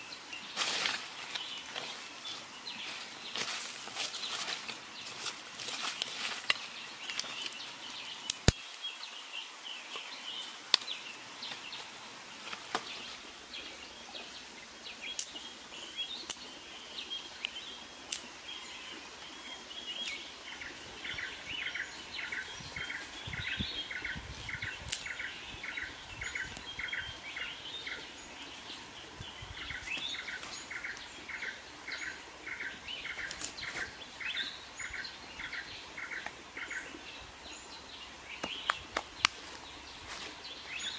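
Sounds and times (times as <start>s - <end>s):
birds chirping: 0.0s - 40.9s
sticks and stones clicking: 3.4s - 8.7s.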